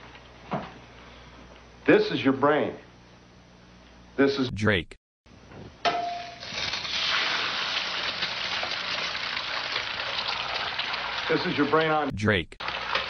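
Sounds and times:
egg sizzling in frying pan: 0:06.4 - 0:11.4, 0:12.6 - 0:13.0.

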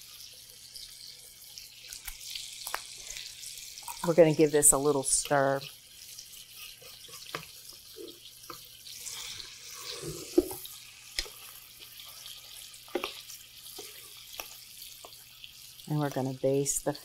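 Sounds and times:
butter sizzling in frying pan: 0:00.0 - 0:17.0.

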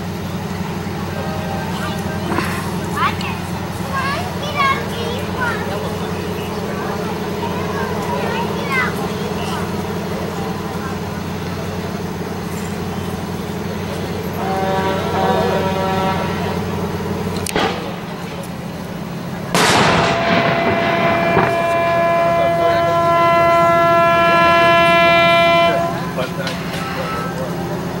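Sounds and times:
low engine drone: 0:00.0 - 0:28.0
tugboat horn blasts: 0:00.4 - 0:28.0
cannon firing: 0:17.5 - 0:18.4, 0:19.5 - 0:22.8.

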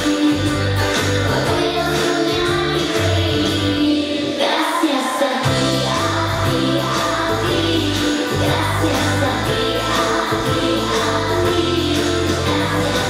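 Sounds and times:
live pop band playing: 0:00.0 - 0:04.6, 0:05.4 - 0:13.0
woman singing into a microphone: 0:00.0 - 0:13.0.

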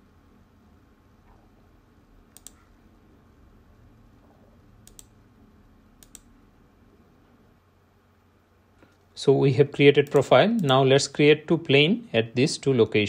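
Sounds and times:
faint low room hum: 0:00.0 - 0:13.0
computer mouse clicking: 0:02.3 - 0:02.7, 0:04.8 - 0:05.2, 0:06.0 - 0:06.3.

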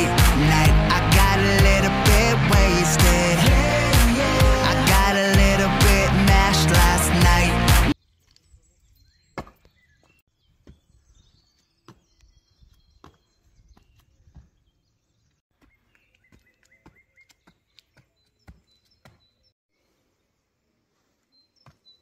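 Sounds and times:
music: 0:00.0 - 0:08.0
birds chirping faintly: 0:08.0 - 0:22.0
footsteps on stone steps: 0:09.4 - 0:14.8, 0:15.5 - 0:19.5, 0:21.5 - 0:22.0.

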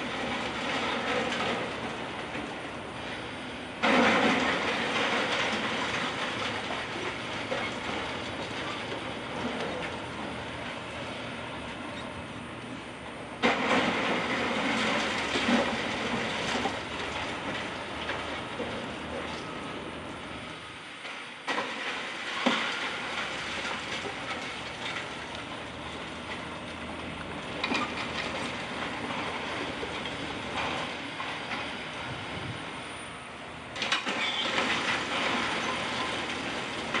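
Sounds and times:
falling concrete and metal debris: 0:03.8 - 0:10.0, 0:13.4 - 0:18.9, 0:21.5 - 0:25.6, 0:27.6 - 0:31.6, 0:33.8 - 0:37.0.

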